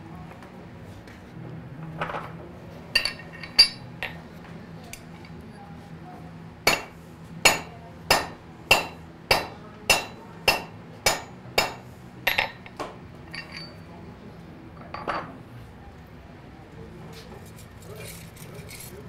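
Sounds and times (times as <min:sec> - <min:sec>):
hammer striking metal: 0:06.7 - 0:12.6
light metal clinks: 0:12.3 - 0:13.9.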